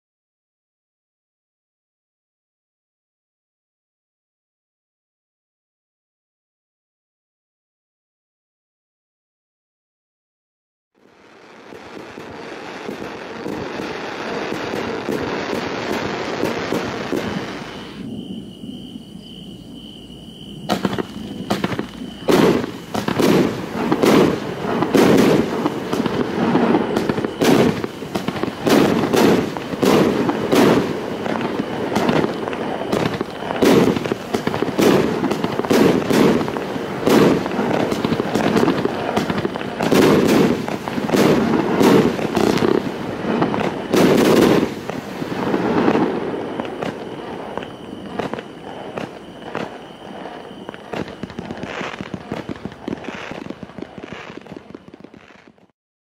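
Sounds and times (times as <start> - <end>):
firework hissing: 11.0 - 18.5, 20.6 - 55.7
firework bangs: 11.2 - 55.7.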